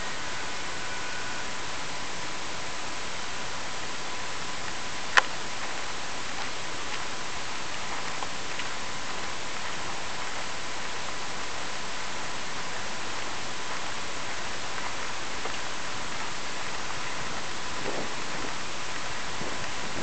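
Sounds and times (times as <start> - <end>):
faint high tone: 0.0 - 2.4
microphone hiss: 0.0 - 20.0.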